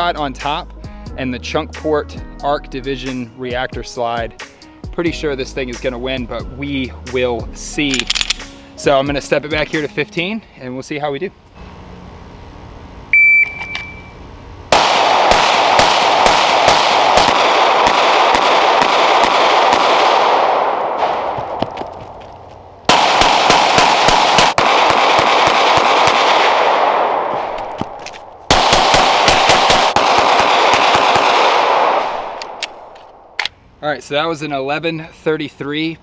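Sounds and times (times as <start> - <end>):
shot timer beep: 13.1 - 14.2
rapid pistol fire: 14.7 - 21.7, 22.9 - 27.6, 28.5 - 32.9.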